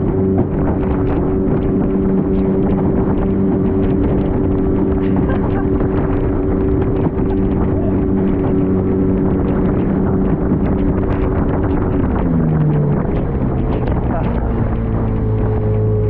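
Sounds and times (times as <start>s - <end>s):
motorboat engine running: 0.0s - 16.0s
waves knocking on metal hull: 0.0s - 16.0s
wind on microphone: 0.0s - 16.0s.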